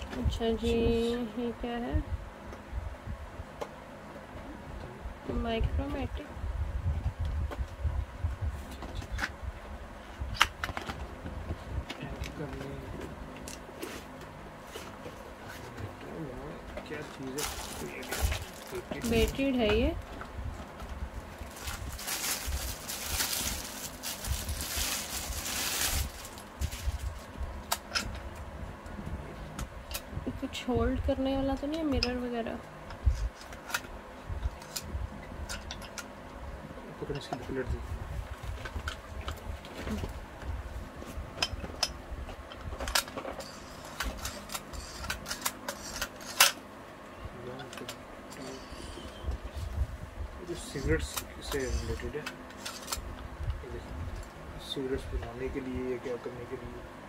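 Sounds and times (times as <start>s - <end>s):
packaging rustling: 17.2s - 19.4s, 21.2s - 27.4s.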